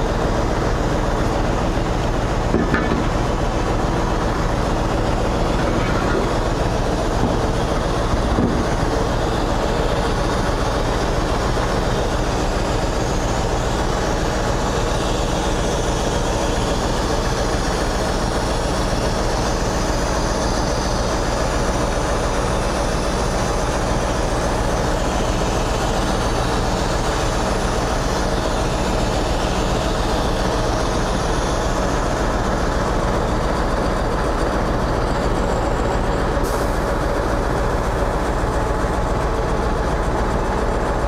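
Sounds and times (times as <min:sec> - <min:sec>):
truck diesel engine running: 0:00.0 - 0:41.0.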